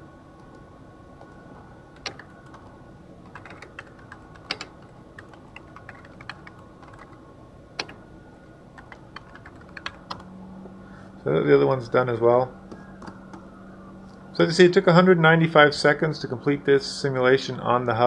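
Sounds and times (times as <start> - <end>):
computer keyboard key clicks: 2.0 - 2.6, 3.3 - 7.1.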